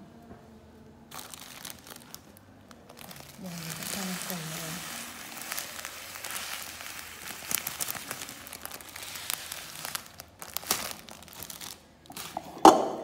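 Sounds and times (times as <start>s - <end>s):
plastic bag crinkling: 1.1s - 12.7s
sugar pouring into glass jar: 3.0s - 10.1s.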